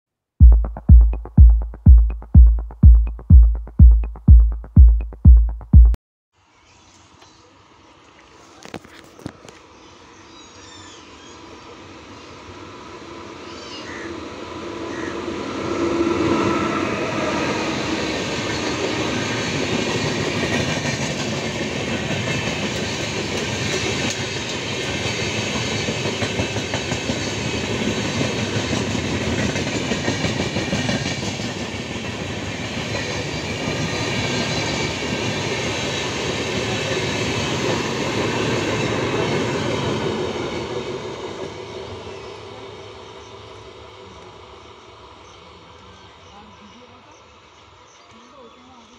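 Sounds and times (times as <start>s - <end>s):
train wheels rolling on rails: 17.8s - 42.5s.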